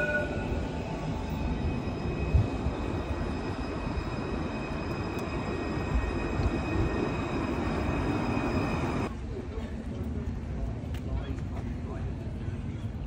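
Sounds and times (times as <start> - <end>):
high-pitched tram whine: 0.0 - 9.1
tram rumbling past: 0.0 - 10.8.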